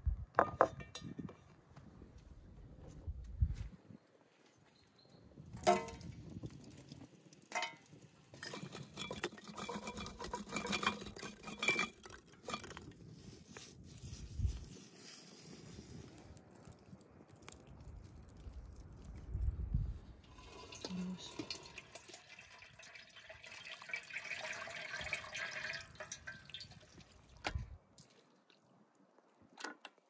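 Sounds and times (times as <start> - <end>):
metal skewers clattering on grill: 7.5 - 12.0.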